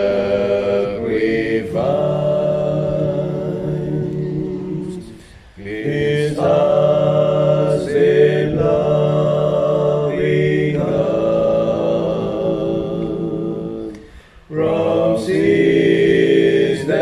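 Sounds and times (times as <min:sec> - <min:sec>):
man singing a hymn a capella: 0:00.0 - 0:17.0.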